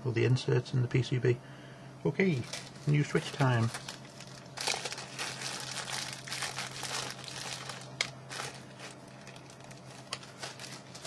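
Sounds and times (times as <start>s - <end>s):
plastic packaging crinkling: 2.2s - 11.0s.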